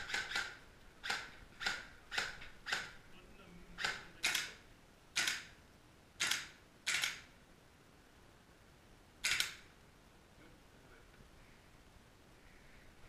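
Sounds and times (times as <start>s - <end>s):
airsoft rifle shots: 0.0s - 3.0s, 3.8s - 5.6s, 6.2s - 7.3s, 9.2s - 9.7s.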